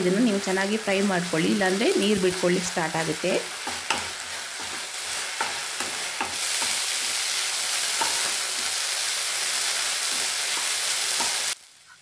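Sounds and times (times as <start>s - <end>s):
vegetables sizzling in a pan: 0.0s - 12.0s
spatula scraping a pan: 3.5s - 11.6s.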